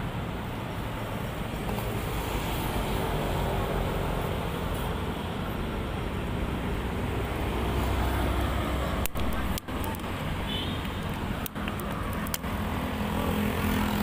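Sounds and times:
road traffic rushing past: 0.0s - 14.0s.

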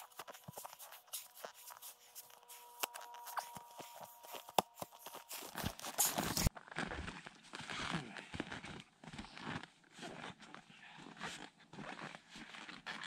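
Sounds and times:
snow crunching and scraping: 0.0s - 10.4s.

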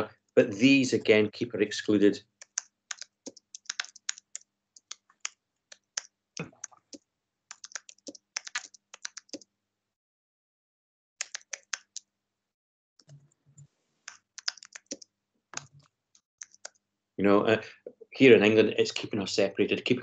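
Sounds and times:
typing on computer keyboard: 2.4s - 9.4s, 11.2s - 12.0s, 14.1s - 15.0s, 15.6s - 16.8s.

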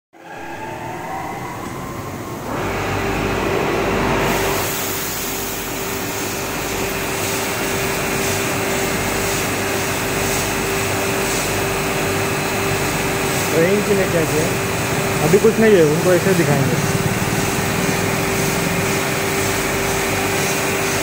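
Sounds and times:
loud rush: 0.1s - 5.9s
conveyor machinery rumble and rattle: 0.2s - 21.0s
steady hum: 0.2s - 21.0s
water spraying hiss: 4.3s - 21.0s.

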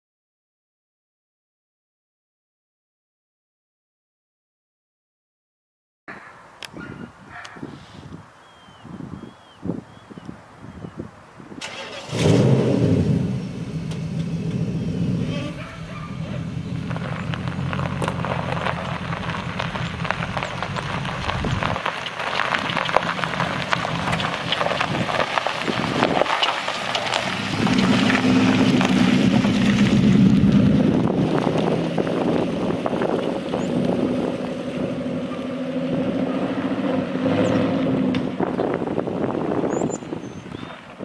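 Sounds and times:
tyre and road noise: 6.1s - 41.0s
truck engine running: 13.0s - 39.2s.

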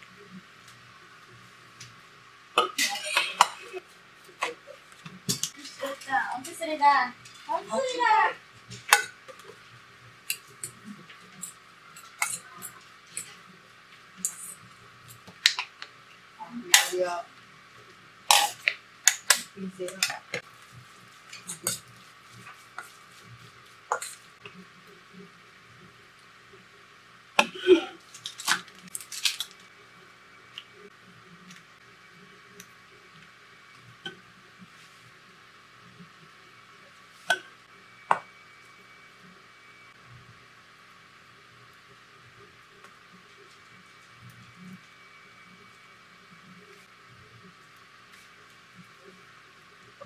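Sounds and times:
utensils clinking against metal bowl: 11.4s - 13.3s, 21.4s - 21.9s
plastic packet crinkling: 28.1s - 29.6s.

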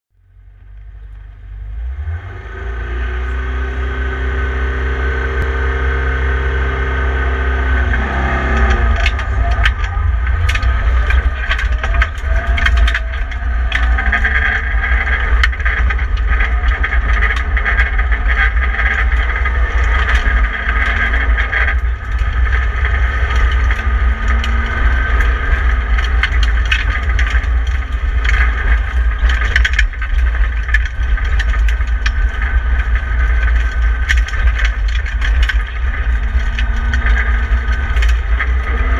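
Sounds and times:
rally car engine revving: 0.4s - 38.9s
gravel clattering against underbody: 7.8s - 38.9s.

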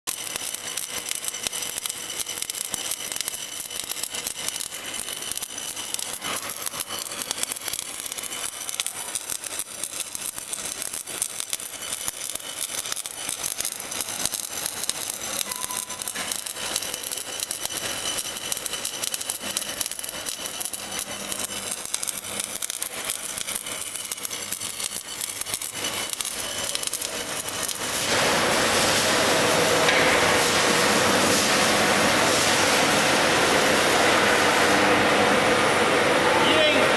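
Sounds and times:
welding arc crackling: 0.1s - 36.9s
loud steady hiss: 26.6s - 36.9s.

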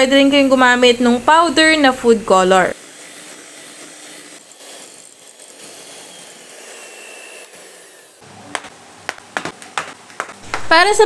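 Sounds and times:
electric hand mixer running: 0.1s - 8.3s.

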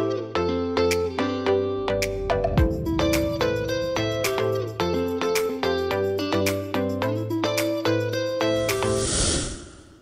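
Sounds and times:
bright pitched instrumental notes: 1.8s - 6.2s
held bass line: 2.0s - 5.0s.

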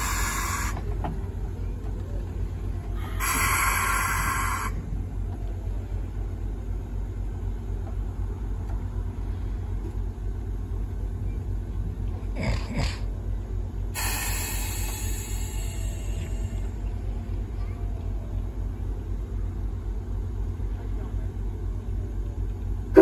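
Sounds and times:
steam hissing burst: 0.0s - 0.8s, 3.2s - 4.8s, 14.0s - 16.6s
steam locomotive low rumble: 0.0s - 23.0s.

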